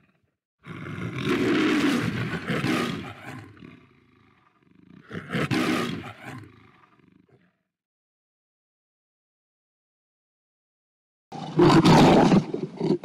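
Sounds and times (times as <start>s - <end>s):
lion roaring: 0.0s - 7.6s, 11.4s - 13.0s.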